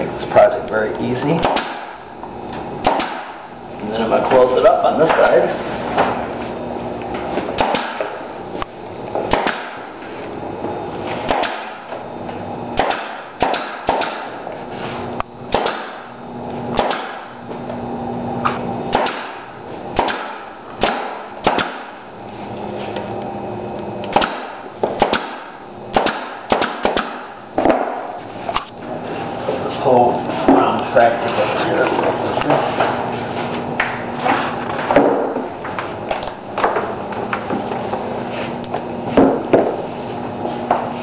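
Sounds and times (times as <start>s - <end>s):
low steady hum: 0.0s - 41.0s
pneumatic nail gun firing: 1.4s - 2.0s, 2.8s - 3.5s, 7.6s - 8.3s, 9.3s - 10.0s, 11.2s - 12.0s, 12.8s - 14.5s, 15.5s - 16.1s, 16.7s - 17.4s, 18.4s - 22.0s, 24.1s - 28.7s.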